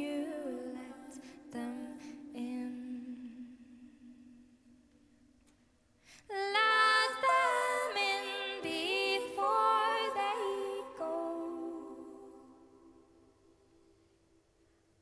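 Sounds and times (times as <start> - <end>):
woman singing: 0.0 - 3.9, 6.2 - 13.0.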